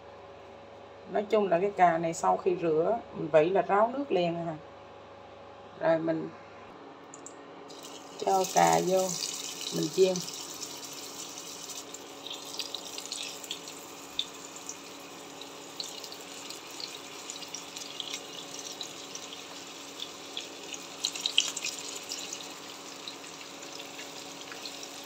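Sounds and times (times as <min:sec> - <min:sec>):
faint steady hum: 0:00.0 - 0:25.0
food sizzling in hot oil: 0:07.7 - 0:25.0.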